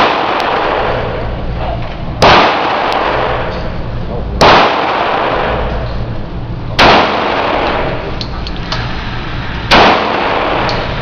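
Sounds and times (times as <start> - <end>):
pistol shots echoing indoors: 0.0 - 1.3, 2.2 - 3.8, 4.4 - 6.0, 6.7 - 9.0, 9.6 - 11.0.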